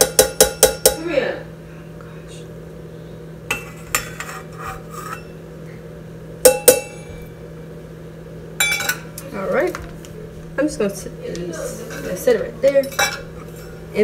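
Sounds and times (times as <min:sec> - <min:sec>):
steady low hum: 0:00.0 - 0:14.0
metal measuring cups clinking: 0:12.7 - 0:13.8.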